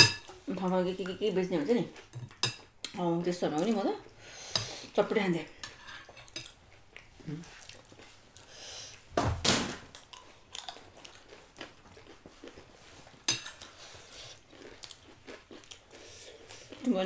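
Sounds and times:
crunchy chewing: 9.9 - 16.9.

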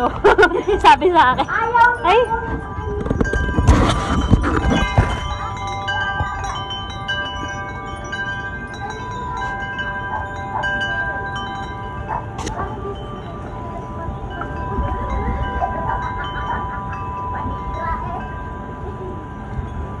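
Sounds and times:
wind chimes ringing: 0.0 - 20.0
low thumping and rustling: 2.4 - 5.4.

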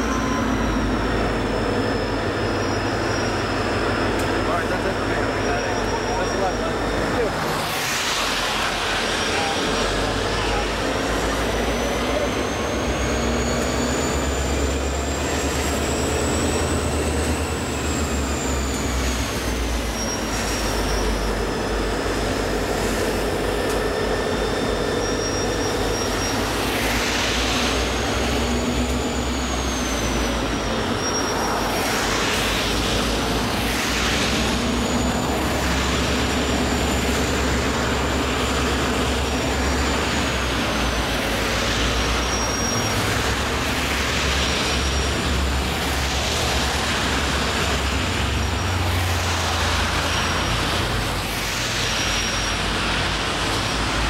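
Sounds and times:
diesel locomotive engine drone: 0.0 - 54.0
thin high whine: 0.0 - 54.0.

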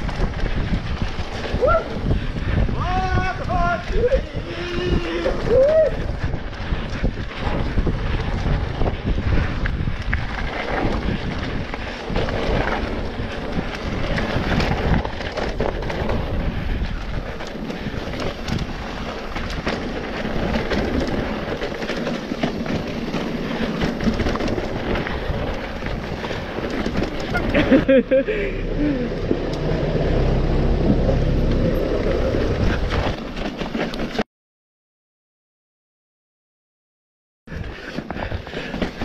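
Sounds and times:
wind buffeting microphone: 0.0 - 33.7
bike knocks and rattles: 6.6 - 28.2
tyre rumble on dirt: 10.2 - 34.2.

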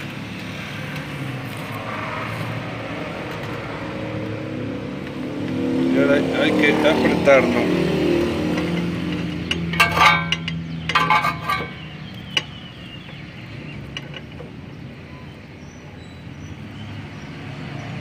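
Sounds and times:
metal wrench clicking: 8.5 - 11.8
short metallic ring: 9.1 - 11.9.

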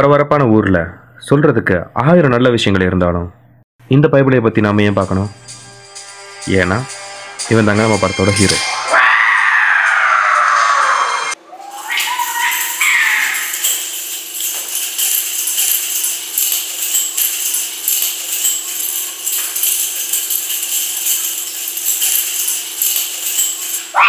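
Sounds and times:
jingling shaken percussion: 4.7 - 10.6, 11.6 - 24.0.

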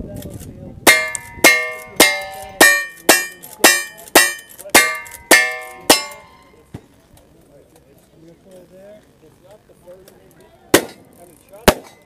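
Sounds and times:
steel targets ringing: 0.9 - 6.6.

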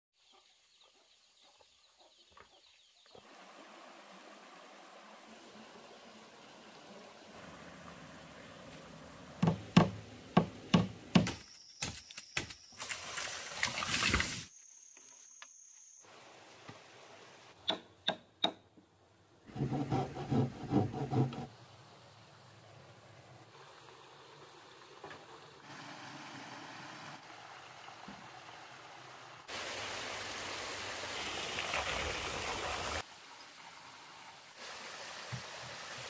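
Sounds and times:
faint running stream: 0.2 - 14.9, 15.5 - 36.0
sharp knocks: 9.4 - 11.4
handsaw cutting wooden board: 19.5 - 21.5.

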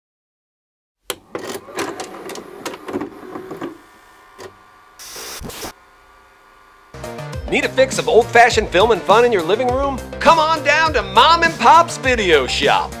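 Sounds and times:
vcr mechanism clicking and whirring: 1.1 - 5.0
hiss: 5.0 - 5.8.

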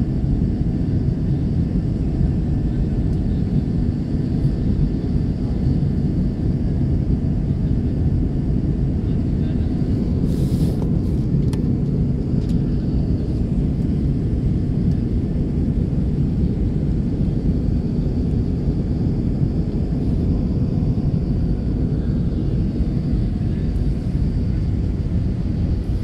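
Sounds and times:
airplane engines roaring: 0.0 - 26.0
rushing airflow: 9.8 - 14.5.

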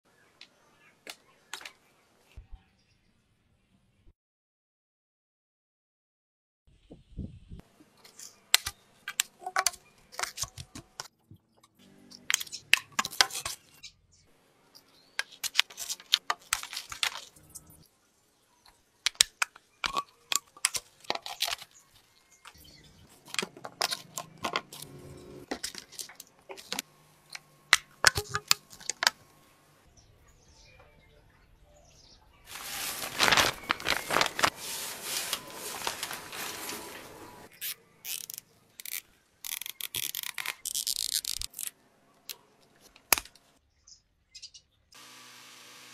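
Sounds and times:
fabric sheet rustling: 32.5 - 37.5.

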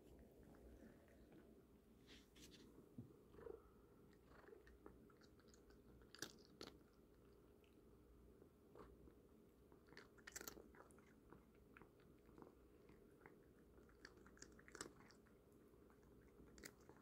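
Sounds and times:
cat crunching treats: 4.2 - 7.4, 9.7 - 17.0.

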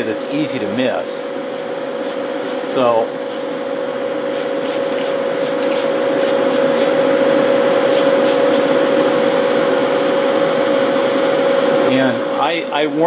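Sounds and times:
fans humming: 0.0 - 13.0
spray can hissing: 1.5 - 3.5, 4.3 - 7.0, 7.9 - 8.7.

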